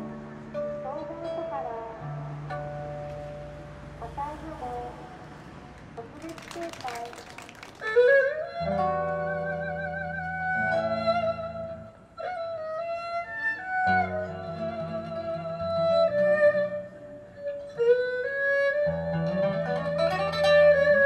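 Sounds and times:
erhu melody: 0:07.8 - 0:21.0.

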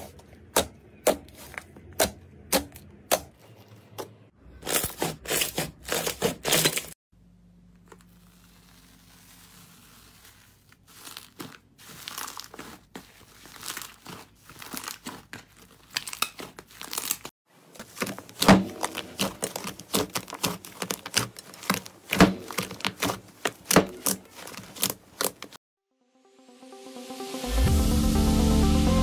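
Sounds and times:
slime being squished by hand: 0:08.0 - 0:25.6.

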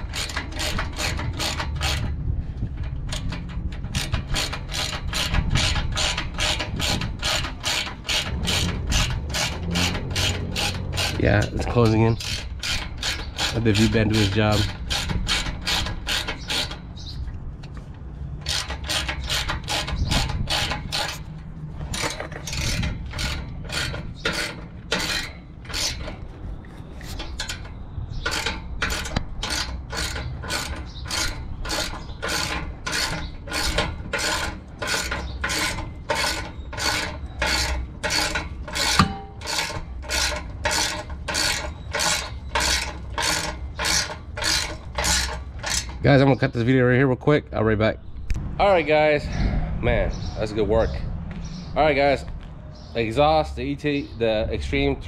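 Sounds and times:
ratchet wrench clicking: 0:00.0 - 0:02.2, 0:02.8 - 0:17.1, 0:18.4 - 0:26.2, 0:27.0 - 0:46.0.

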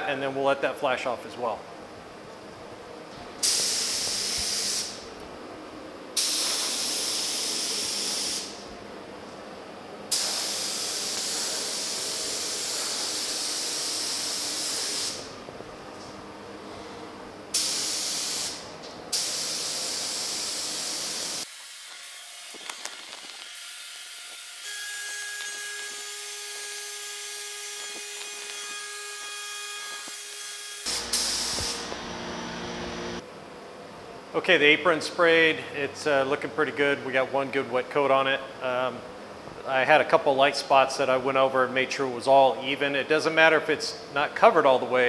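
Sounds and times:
paint spray gun hissing: 0:03.4 - 0:05.0, 0:06.2 - 0:08.6, 0:10.1 - 0:15.3, 0:17.6 - 0:21.8, 0:30.9 - 0:32.0.

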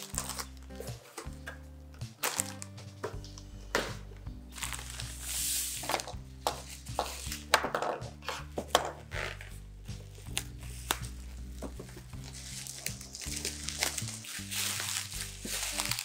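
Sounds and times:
bubble wrap crinkling: 0:00.0 - 0:01.4, 0:02.0 - 0:03.4, 0:04.5 - 0:07.6, 0:08.2 - 0:16.0
bubble wrap snaps: 0:00.0 - 0:07.9, 0:08.6 - 0:16.0
calm background music: 0:00.0 - 0:16.0.

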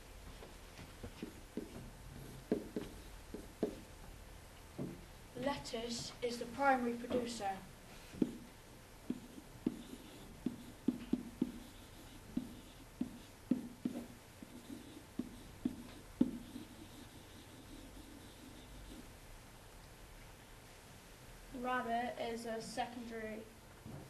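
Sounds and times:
stylus tapping on surface: 0:02.5 - 0:03.8, 0:08.2 - 0:08.5, 0:09.1 - 0:16.6.

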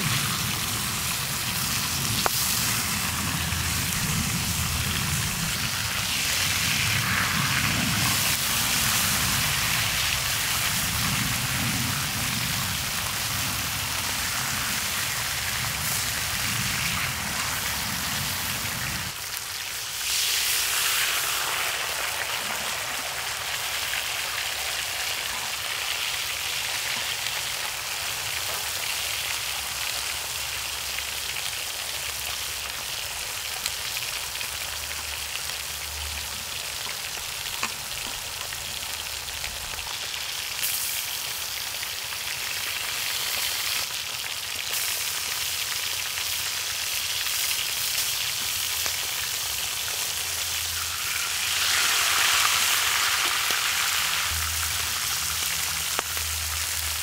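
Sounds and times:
low rumble: 0:00.0 - 0:19.1, 0:54.3 - 0:57.0
meat sizzling and spitting fat: 0:00.0 - 0:57.0.

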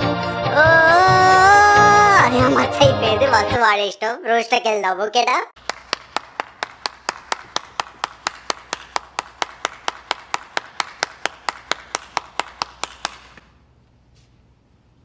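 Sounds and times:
person clapping hands: 0:05.6 - 0:13.6.

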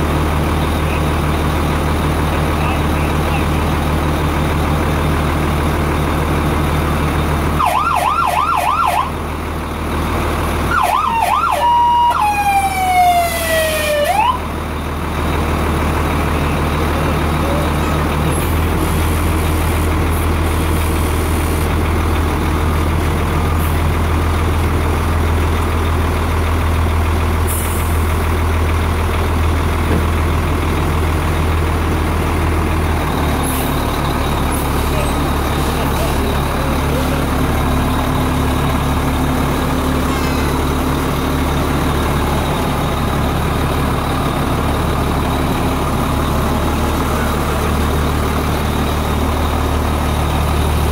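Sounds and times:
truck engine idling: 0:00.0 - 0:50.9
fire truck siren: 0:06.8 - 0:21.7.

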